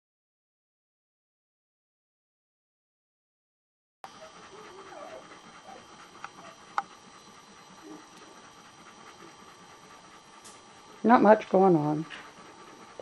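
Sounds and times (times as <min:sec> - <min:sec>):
puppies squeaking: 0:04.1 - 0:08.5
dog panting: 0:04.1 - 0:13.0.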